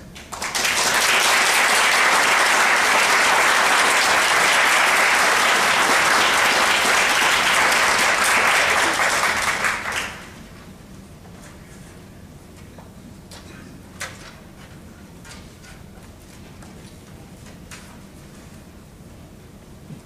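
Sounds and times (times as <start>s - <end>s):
audience applauding: 0.2s - 10.5s.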